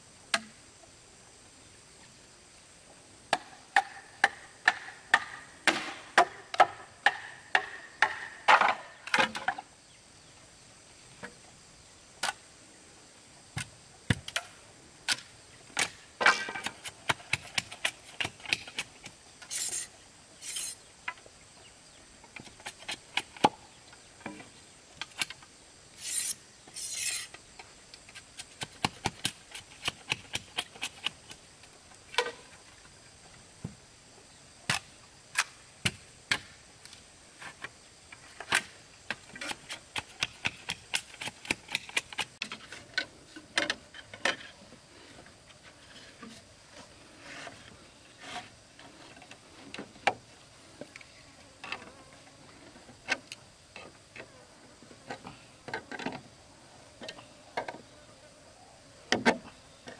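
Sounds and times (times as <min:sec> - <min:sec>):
hand tools knocking bamboo: 0:03.3 - 0:08.8
scraping strokes: 0:16.5 - 0:20.8, 0:26.0 - 0:27.4, 0:44.3 - 0:49.6.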